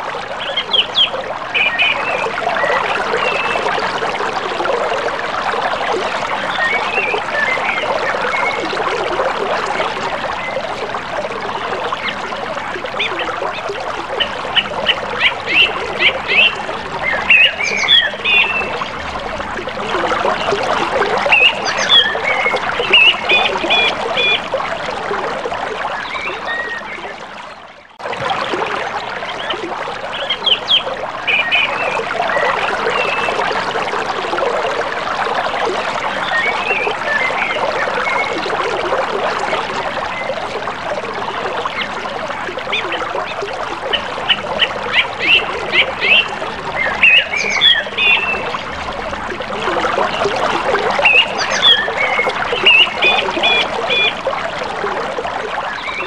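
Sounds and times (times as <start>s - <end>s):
birds calling: 0.4s - 3.7s, 13.0s - 19.2s, 19.8s - 24.5s, 29.3s - 33.4s, 42.7s - 49.0s, 49.6s - 54.2s.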